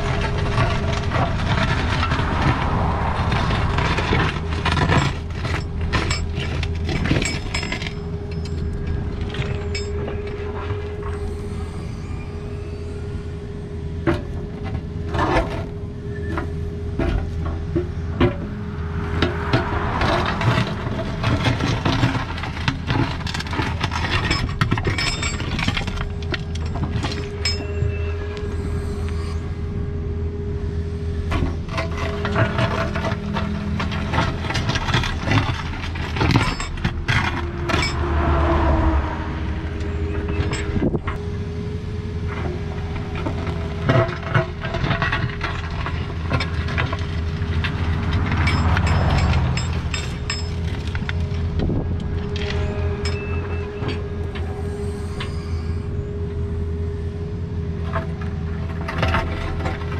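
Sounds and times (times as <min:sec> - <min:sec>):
excavator engine drone: 0:00.0 - 0:59.9.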